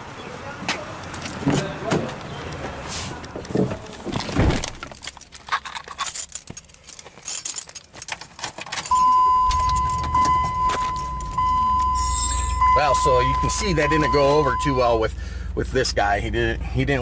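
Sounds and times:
truck engine rumbling: 0.0 - 17.0
keys jangling: 4.9 - 12.6
high electronic warning tone: 8.9 - 15.0.

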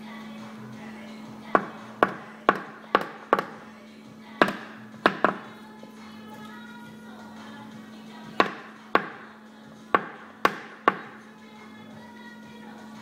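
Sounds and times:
tool tapping on sheet metal: 1.6 - 3.6, 4.4 - 5.5, 8.4 - 9.2, 10.0 - 11.2.

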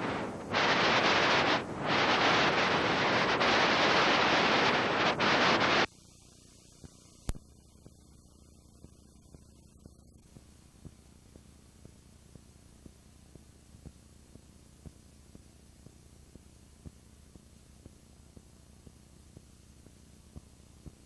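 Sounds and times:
videotape static hiss: 0.0 - 21.0
small ticks: 6.3 - 21.0.

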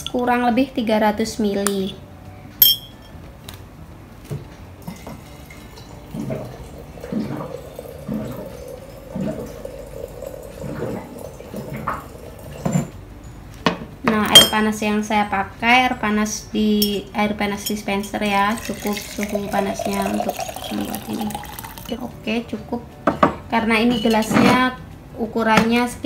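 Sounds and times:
water gurgle: 4.9 - 12.8, 18.6 - 21.9
water running into container: 4.9 - 12.9, 18.5 - 22.0.

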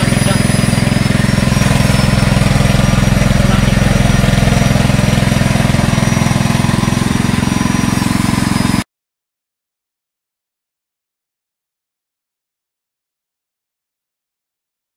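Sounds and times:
small petrol engine running: 0.0 - 8.8.

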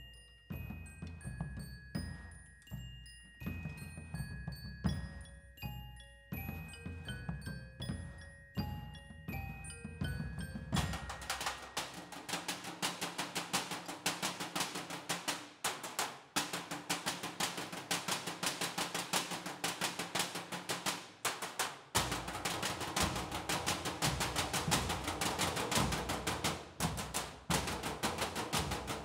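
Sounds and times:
ringing mallet percussion notes: 0.0 - 15.2, 22.0 - 29.0
drumsticks striking metal trash cans: 10.8 - 29.0.

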